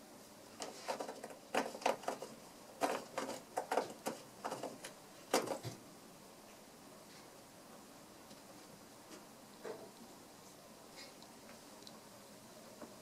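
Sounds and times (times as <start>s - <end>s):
cat claws scratching cardboard: 0.6s - 5.8s.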